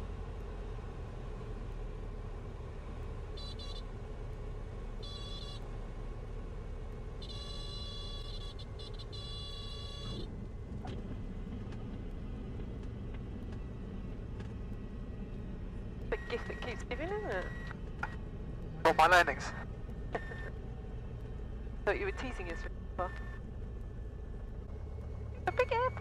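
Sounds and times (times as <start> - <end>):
light aircraft engine: 0.0 - 26.0
wheels rumbling on runway: 0.0 - 26.0
stall warning horn beeping: 3.4 - 3.9, 5.0 - 5.6, 7.2 - 10.3.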